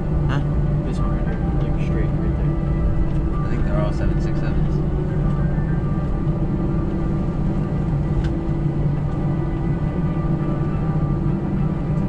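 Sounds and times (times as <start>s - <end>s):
jet engines droning in cabin: 0.0s - 12.0s.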